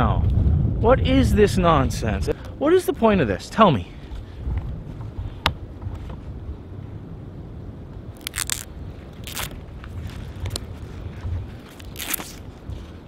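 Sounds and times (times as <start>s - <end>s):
low steady rumble: 0.0s - 13.0s
tape crackling scrapes: 8.2s - 13.0s.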